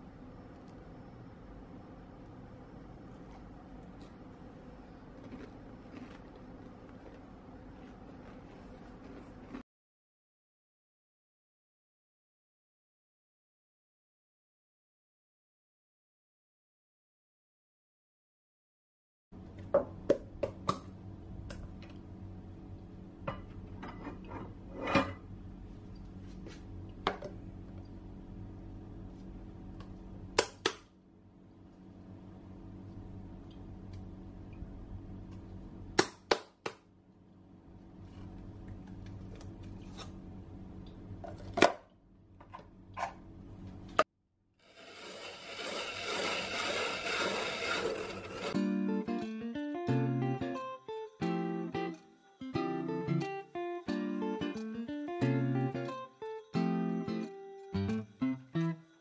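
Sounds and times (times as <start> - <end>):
low steady hum: 0.0 - 9.6, 19.4 - 44.1
blade grinding ice: 44.6 - 48.6.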